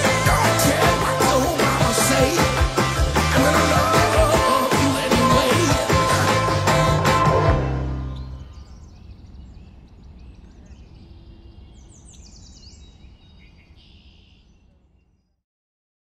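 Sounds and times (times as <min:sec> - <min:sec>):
songbirds calling: 0:07.9 - 0:15.4.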